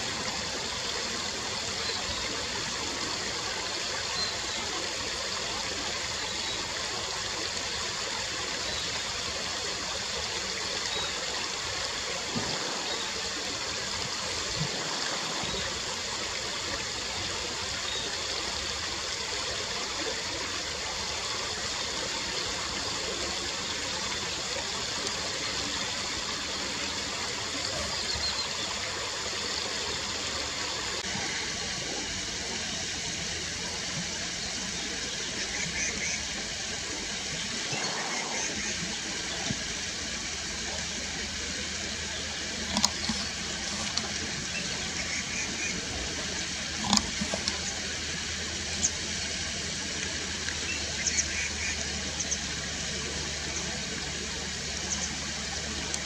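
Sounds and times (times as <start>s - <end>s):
water flowing over rocks: 0.0s - 56.0s.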